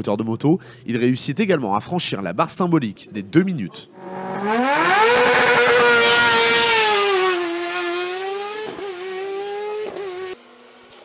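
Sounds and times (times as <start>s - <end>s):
race car accelerating: 3.9s - 11.0s
gear change: 4.0s - 10.3s.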